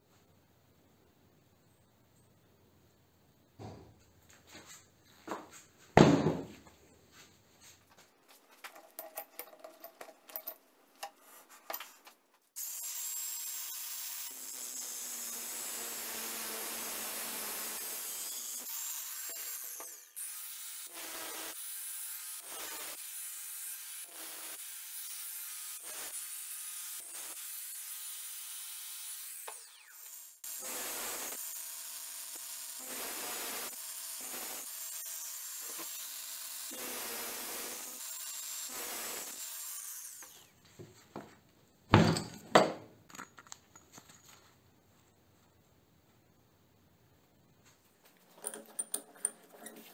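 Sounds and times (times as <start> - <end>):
angle grinder cutting metal: 12.6 - 40.6.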